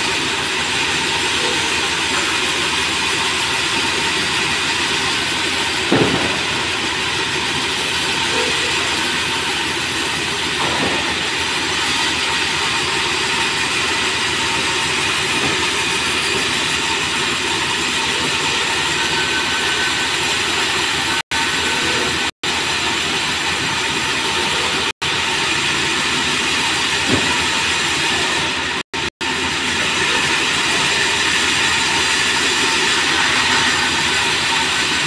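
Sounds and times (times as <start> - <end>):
band saw cutting boards: 0.0 - 35.0.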